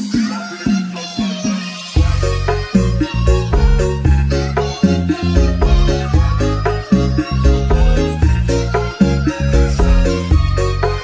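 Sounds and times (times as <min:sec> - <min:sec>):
background music with bass line: 0:00.0 - 0:11.0.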